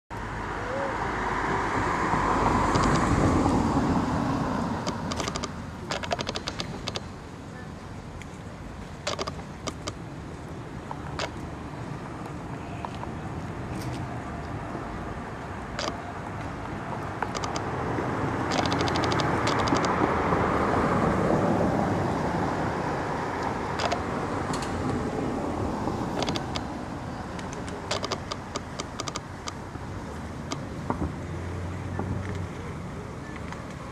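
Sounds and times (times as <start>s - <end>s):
road traffic noise: 0.1s - 33.9s
vehicle passing by: 0.2s - 7.1s, 9.2s - 33.9s
quick sharp clicks: 2.7s - 3.1s, 4.8s - 7.1s, 9.0s - 10.0s, 11.1s - 11.4s, 15.8s - 16.0s, 17.2s - 17.7s, 18.5s - 20.0s, 23.8s - 24.7s, 26.2s - 26.7s, 27.4s - 29.6s.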